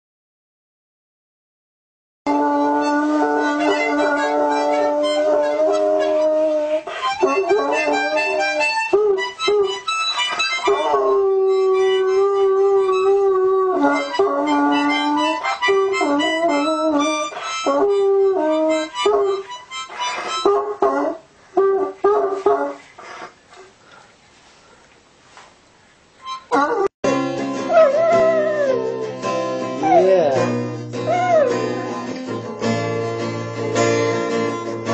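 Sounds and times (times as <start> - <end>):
dog howling and whimpering: 2.3 - 9.7, 10.6 - 19.4, 26.5 - 27.0, 27.7 - 29.2, 29.8 - 32.2
harmonica playing: 2.3 - 23.3, 26.2 - 34.9.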